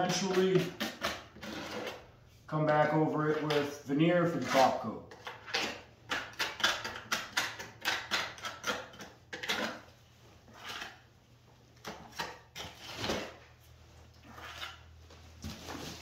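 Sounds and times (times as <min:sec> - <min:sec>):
trowel scraping plaster: 0:00.0 - 0:02.1, 0:03.2 - 0:11.1, 0:11.8 - 0:13.5, 0:14.1 - 0:14.9
scraping plaster from plastic bucket: 0:00.0 - 0:11.0, 0:11.8 - 0:13.5, 0:14.2 - 0:16.0.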